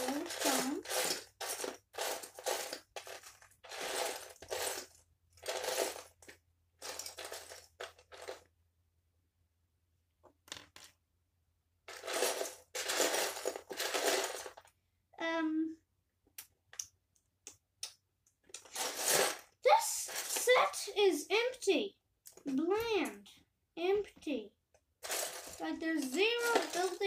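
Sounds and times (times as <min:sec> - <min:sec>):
plastic pieces clattering: 0:00.0 - 0:08.5, 0:11.9 - 0:14.7, 0:18.5 - 0:20.8, 0:25.0 - 0:27.0.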